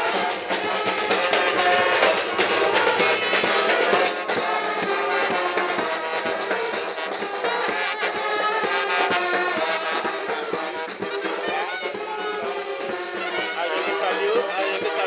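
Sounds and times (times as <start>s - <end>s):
drum hits: 0.0s - 14.0s
brass band playing: 0.0s - 15.0s.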